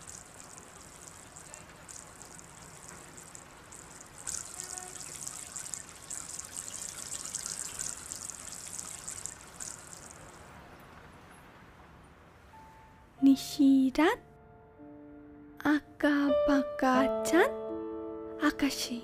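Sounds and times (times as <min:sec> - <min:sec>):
water trickling: 0:00.0 - 0:10.8.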